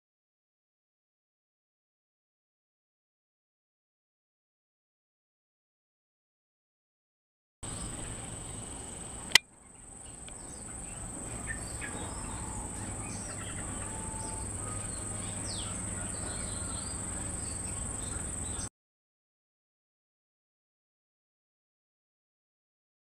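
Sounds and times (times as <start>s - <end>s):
insects droning: 7.6s - 18.7s.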